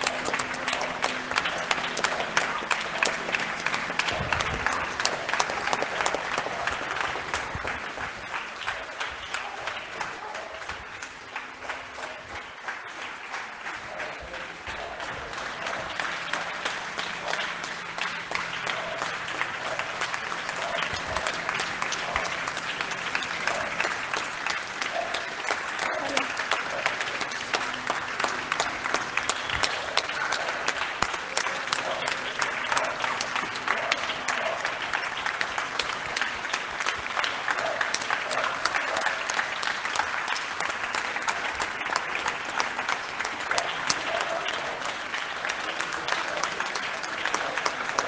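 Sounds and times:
audience applauding: 0:00.0 - 0:48.0.

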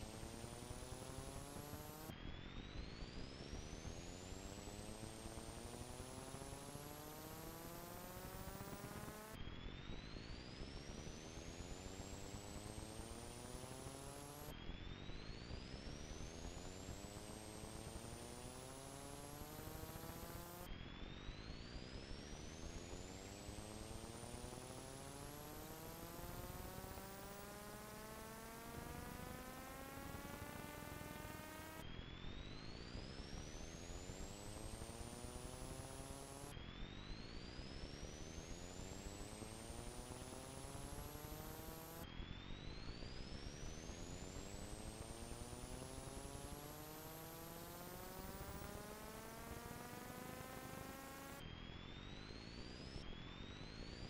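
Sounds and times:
rising electronic buzz: 0:00.0 - 0:54.0
electronic tone gliding in pitch: 0:24.0 - 0:31.9, 0:43.9 - 0:53.6.

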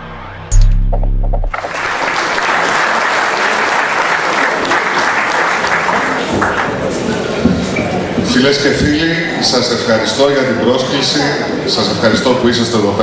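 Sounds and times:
low hum: 0:00.0 - 0:01.7
audience applauding: 0:01.4 - 0:07.2.

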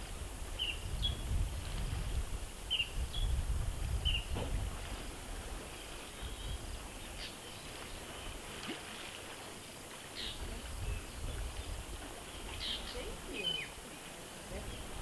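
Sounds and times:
wind rumble on microphone: 0:00.0 - 0:08.7, 0:10.2 - 0:13.4, 0:14.4 - 0:15.0
faint bird chirps: 0:10.2 - 0:14.1.

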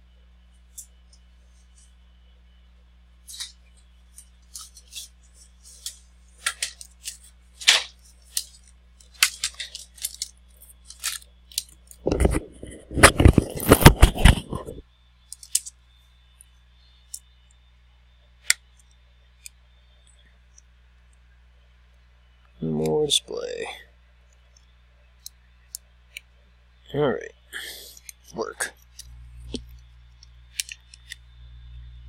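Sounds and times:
low hum: 0:00.0 - 0:32.0
packaging rustling: 0:03.3 - 0:03.6, 0:04.2 - 0:14.8
parts and packaging clicking: 0:03.3 - 0:03.6, 0:04.2 - 0:15.8, 0:27.8 - 0:31.3.

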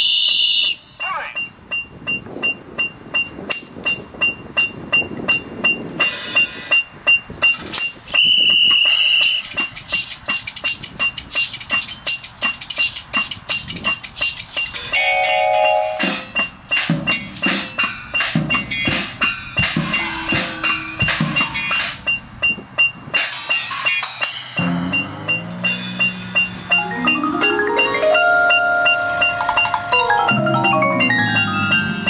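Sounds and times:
metronome beeps: 0:00.0 - 0:32.0
marimbas and vibraphones playing: 0:08.9 - 0:32.0.

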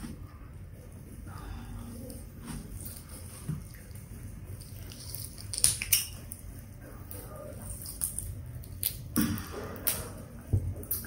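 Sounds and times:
fried chicken skin crackling: 0:04.4 - 0:06.7.

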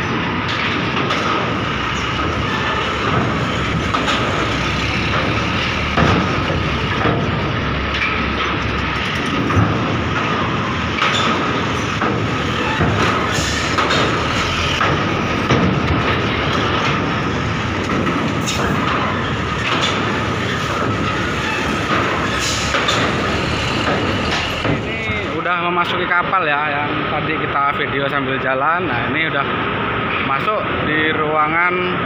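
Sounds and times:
wheels clattering on steel plates: 0:00.0 - 0:25.1
loud ramp clanks: 0:00.0 - 0:25.5
diesel truck engines: 0:00.0 - 0:32.0.

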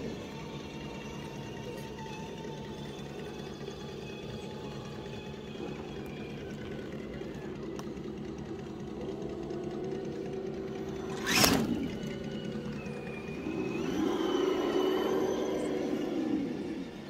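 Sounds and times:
electric motor whirring: 0:09.2 - 0:17.0.

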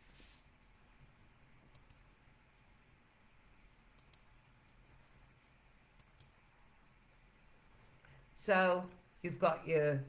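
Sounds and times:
computer mouse clicks: 0:01.7 - 0:02.1, 0:03.9 - 0:04.3, 0:05.9 - 0:06.4.

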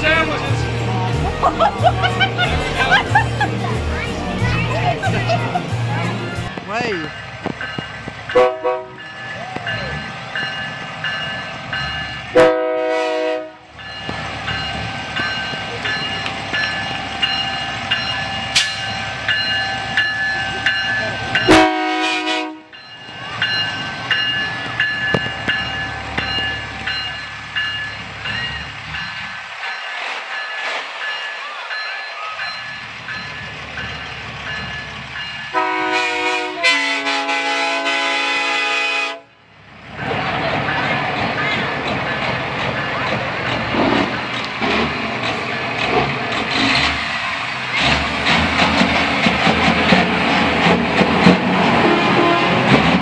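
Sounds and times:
diesel truck engines rumbling: 0:00.0 - 0:12.4, 0:30.9 - 0:37.5, 0:39.5 - 0:53.0
truck air horn blast: 0:08.4 - 0:09.0, 0:12.4 - 0:13.6, 0:21.5 - 0:22.7, 0:35.5 - 0:39.3, 0:51.7 - 0:52.8
truck diesel engine under throttle: 0:43.7 - 0:51.2.

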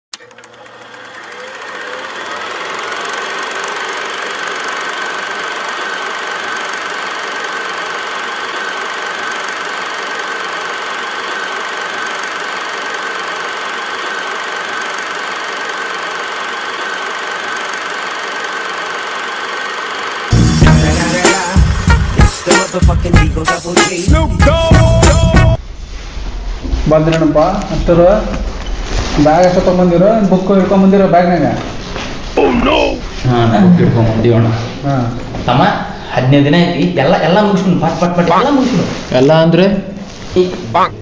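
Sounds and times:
machine whirring with high tone: 0:00.1 - 0:22.7.

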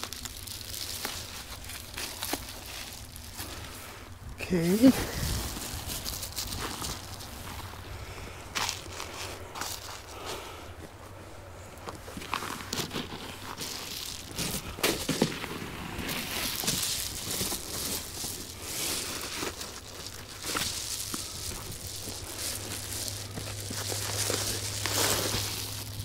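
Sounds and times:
foil insulation crinkling: 0:00.0 - 0:11.0, 0:11.8 - 0:26.0
footsteps: 0:04.8 - 0:07.9, 0:08.5 - 0:11.1, 0:11.8 - 0:26.0.

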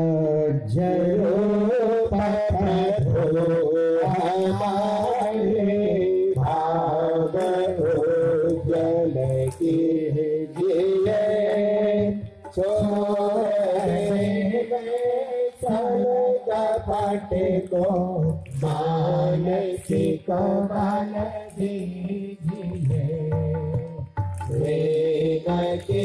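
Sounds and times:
person singing prayer song: 0:00.0 - 0:26.0.

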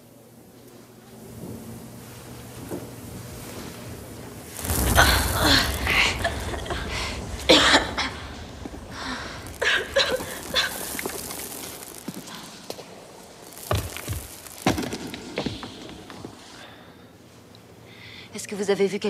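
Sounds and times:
low rumble: 0:04.4 - 0:16.1.

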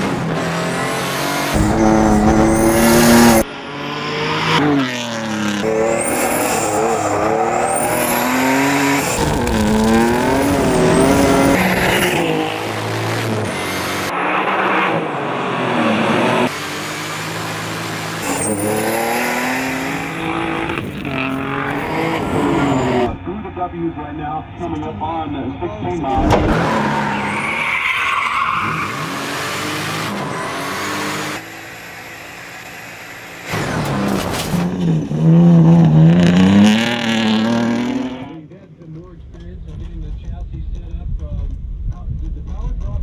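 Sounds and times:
car engine revving at full throttle: 0:00.0 - 0:23.3, 0:28.4 - 0:38.4.

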